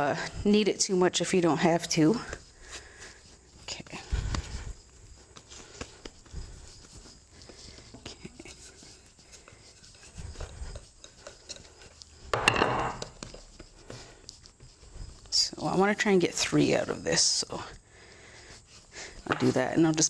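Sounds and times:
dough taps and rustles: 0:07.4 - 0:15.8
rolling pin scrape: 0:08.2 - 0:15.8.

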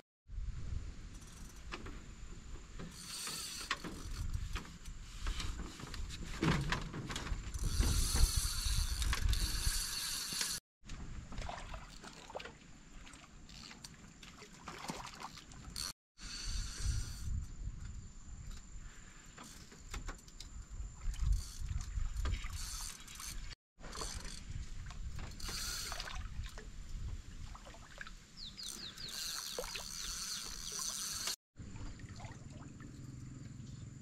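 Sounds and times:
fishing reel whirring and clicking: 0:01.1 - 0:01.8, 0:02.8 - 0:04.5, 0:07.5 - 0:10.6, 0:15.3 - 0:17.5, 0:21.2 - 0:24.6, 0:25.2 - 0:26.1, 0:28.6 - 0:31.4.

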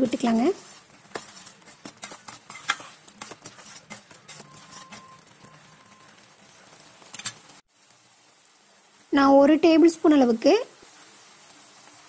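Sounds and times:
spatula scraping steel pan: 0:00.1 - 0:06.3.

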